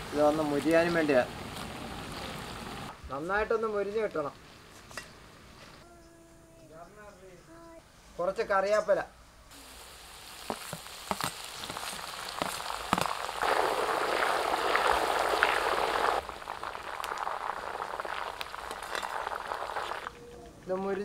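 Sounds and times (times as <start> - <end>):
onions sizzling in hot oil: 0.0 - 2.9, 9.5 - 20.1.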